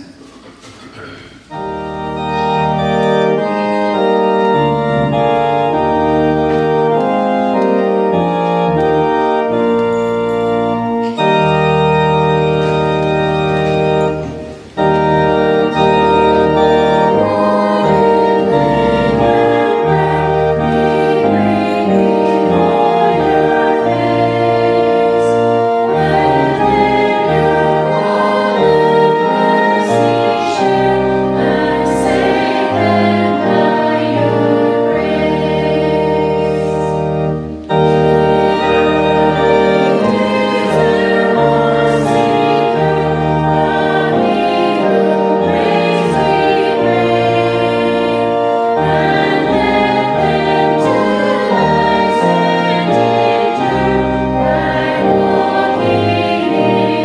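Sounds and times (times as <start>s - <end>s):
church organ playing: 0.0s - 57.0s.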